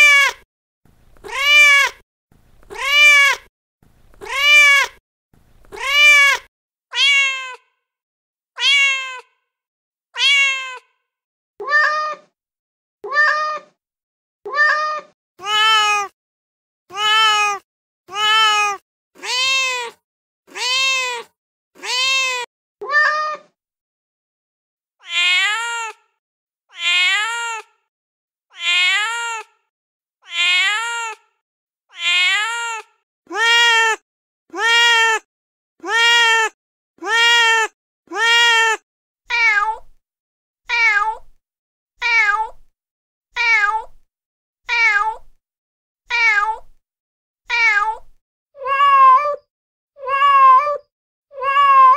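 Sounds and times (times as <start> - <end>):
recorded cat meows: 0.0 - 0.4, 1.2 - 2.0, 2.6 - 3.5, 4.2 - 5.0, 5.7 - 7.8, 8.6 - 9.5, 10.2 - 12.4, 13.0 - 13.8, 14.5 - 16.2, 16.9 - 23.6, 25.0 - 27.9, 28.5 - 40.0, 40.7 - 41.4, 42.0 - 42.7, 43.4 - 44.0, 44.7 - 45.4, 46.1 - 46.8, 47.5 - 51.9.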